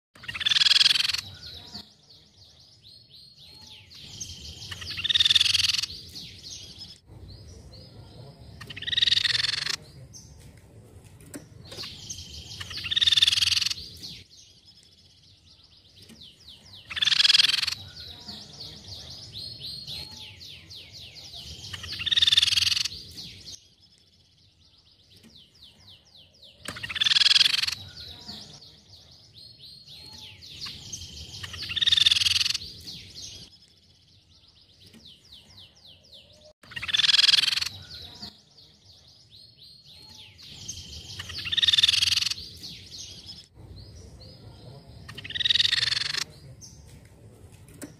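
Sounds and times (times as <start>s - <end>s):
bird calling: 0.2s - 1.8s, 4.5s - 6.3s, 8.6s - 9.8s, 16.7s - 18.0s, 26.5s - 28.6s, 36.6s - 38.4s, 40.0s - 43.0s, 45.0s - 46.4s
dry chattering trill: 0.2s - 1.8s, 8.4s - 10.0s, 45.0s - 46.4s.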